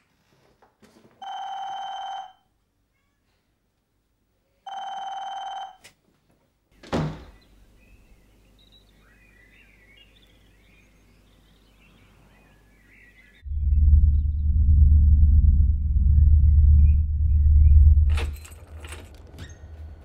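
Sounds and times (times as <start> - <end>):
telephone ringing: 1.2 - 2.5, 4.7 - 5.8
low steady hum: 13.4 - 18.6.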